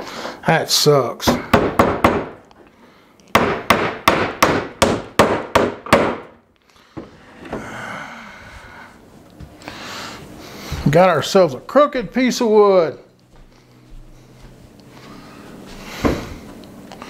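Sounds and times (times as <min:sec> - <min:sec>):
hammer striking a nail into wood: 0:01.3 - 0:02.4, 0:03.3 - 0:06.4.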